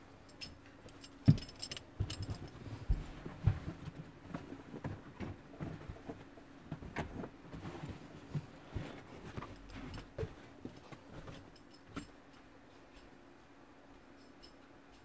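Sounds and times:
faint steady hum: 0:00.0 - 0:15.0
person rummaging among gear: 0:01.0 - 0:12.1.

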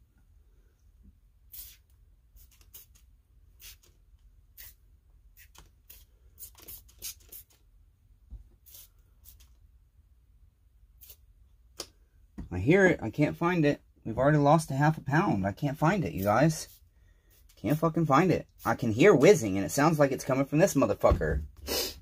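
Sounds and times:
spray bottle squirts: 0:01.5 - 0:04.0, 0:04.6 - 0:04.8, 0:05.4 - 0:07.6, 0:08.6 - 0:09.5, 0:11.0 - 0:11.2.

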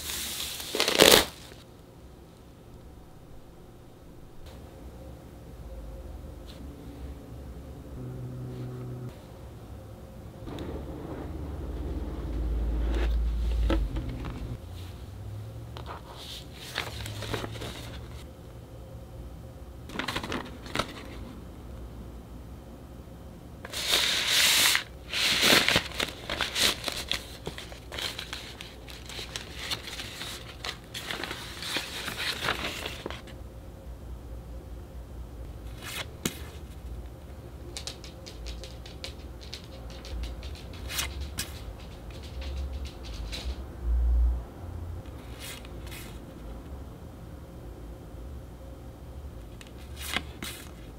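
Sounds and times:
paper pouch crinkling and rustling: 0:00.0 - 0:01.6, 0:23.7 - 0:33.2
cards clicking while shuffled: 0:37.7 - 0:43.6.

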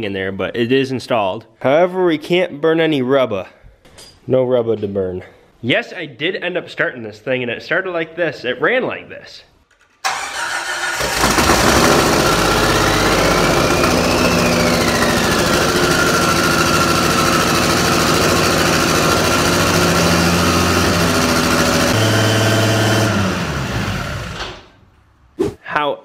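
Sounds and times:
engine running at high idle: 0:10.1 - 0:24.6
high engine whine: 0:11.1 - 0:24.6.

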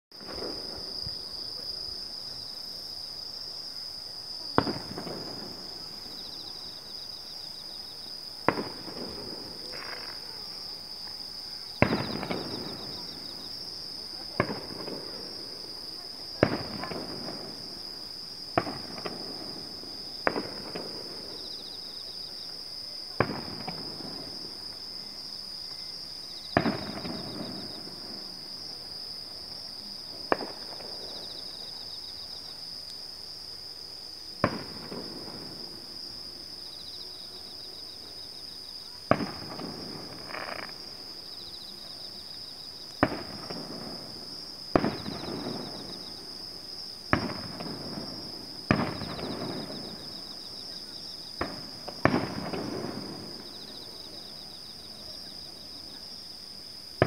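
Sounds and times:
fireworks bursting with echo: 0:00.2 - 0:01.8, 0:04.4 - 0:06.6, 0:08.4 - 0:25.0, 0:26.1 - 0:32.1, 0:34.4 - 0:35.9, 0:39.0 - 0:40.9, 0:42.9 - 0:46.3, 0:47.0 - 0:54.3
insects chirring: 0:00.2 - 0:57.0.

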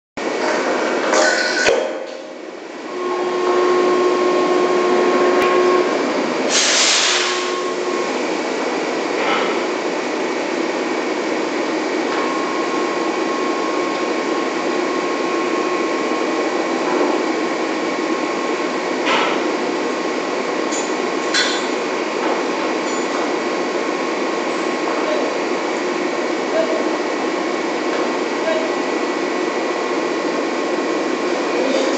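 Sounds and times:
drilling rig machinery din: 0:00.2 - 0:31.9
steady machine whine: 0:00.2 - 0:31.9
burst of hiss: 0:06.5 - 0:07.4.

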